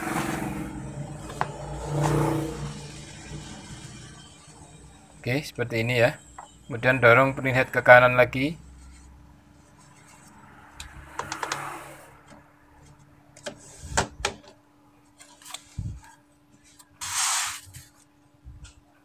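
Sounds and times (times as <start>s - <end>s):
plastic cover scraping: 16.8s - 18.0s.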